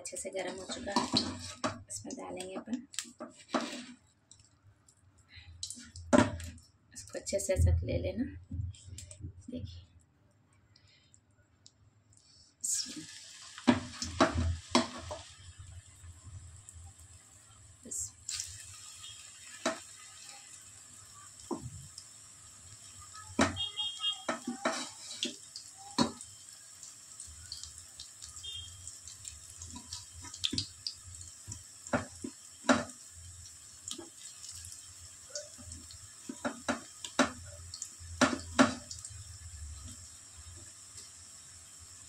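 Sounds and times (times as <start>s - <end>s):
food frying in hot oil: 0.0s - 4.0s, 12.6s - 42.0s.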